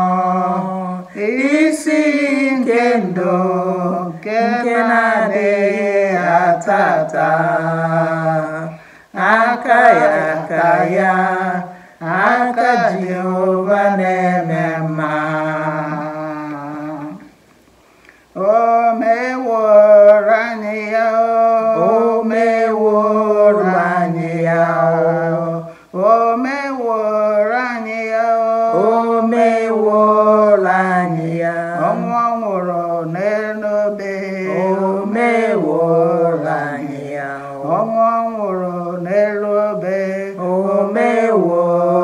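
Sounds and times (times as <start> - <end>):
women singing unaccompanied: 0.0 - 17.4, 18.4 - 42.0.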